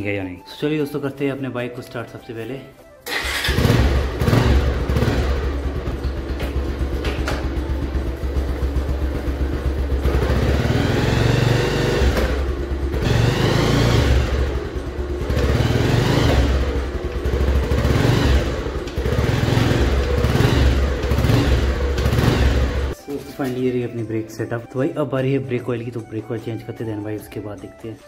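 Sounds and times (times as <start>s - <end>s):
motorcycle engine revving: 3.1s - 23.0s.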